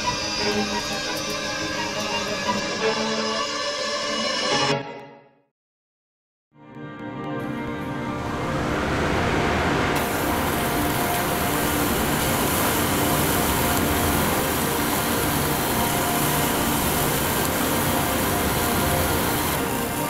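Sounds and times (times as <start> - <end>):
low rumble: 8.1 - 19.6.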